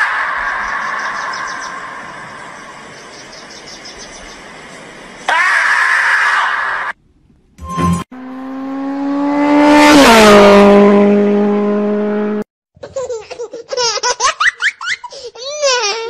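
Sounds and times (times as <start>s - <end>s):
car engine passing: 0.1s - 3.5s, 7.7s - 12.4s
high-pitched laughter: 12.8s - 16.0s.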